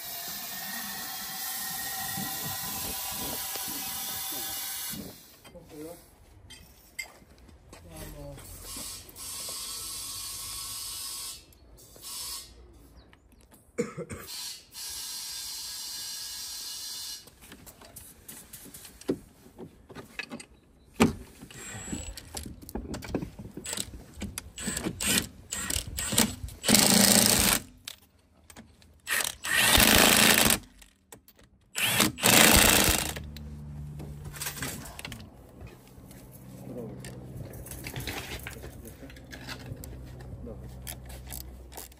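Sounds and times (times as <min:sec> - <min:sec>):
clicks and knocks of parts: 0:19.9 - 0:35.8, 0:37.0 - 0:41.9
power drill running: 0:24.6 - 0:27.7, 0:29.1 - 0:30.6, 0:31.8 - 0:33.3.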